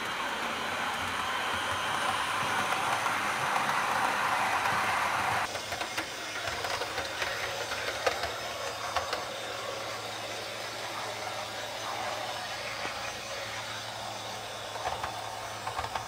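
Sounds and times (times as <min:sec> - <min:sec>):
model train motor hum: 0:00.0 - 0:16.0
passing model train: 0:00.0 - 0:16.0.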